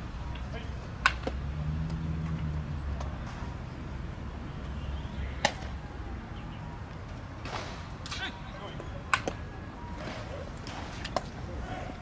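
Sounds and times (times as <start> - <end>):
bat cracking against baseball: 7.4 - 8.4, 10.0 - 11.5.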